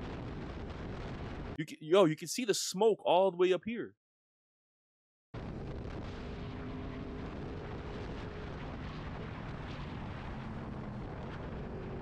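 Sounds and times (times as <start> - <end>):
motorcycle engine drone: 5.5 - 12.0.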